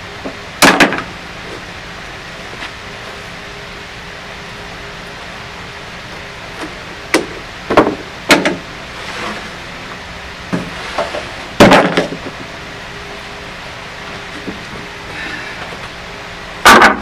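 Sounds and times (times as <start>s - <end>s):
plywood boards knocking and clattering: 0.6s - 1.1s, 7.2s - 8.6s, 10.6s - 12.4s, 16.6s - 17.0s.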